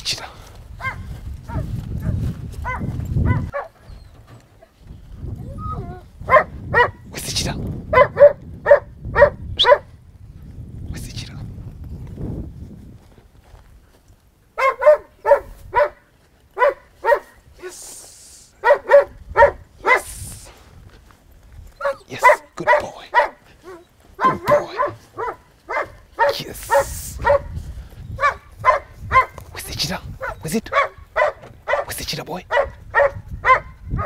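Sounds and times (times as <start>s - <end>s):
dog barking: 0.8s - 3.8s, 6.3s - 7.0s, 7.9s - 9.9s, 14.6s - 17.7s, 18.6s - 20.2s, 21.8s - 27.6s, 28.2s - 29.4s, 30.2s - 34.0s.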